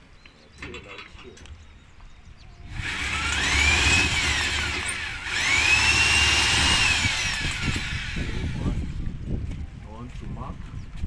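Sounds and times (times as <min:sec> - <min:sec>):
power drill spinning: 0:02.7 - 0:09.0.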